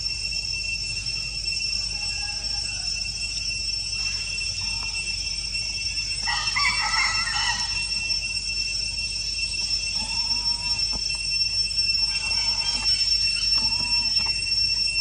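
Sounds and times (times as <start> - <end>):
insects droning: 0.0 - 15.0
animal call: 6.2 - 8.0, 9.9 - 11.0, 11.9 - 14.4.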